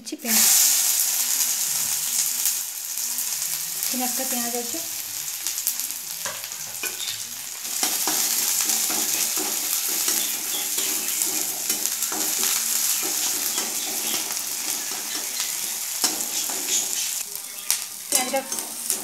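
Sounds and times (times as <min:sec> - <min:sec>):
onions sizzling in hot oil: 0:00.0 - 0:19.0
spatula scraping pan: 0:06.2 - 0:17.2, 0:18.1 - 0:19.0.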